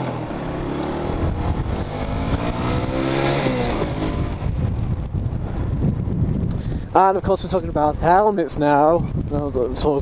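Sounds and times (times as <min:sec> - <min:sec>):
motorcycle engine accelerating: 0:00.0 - 0:06.5.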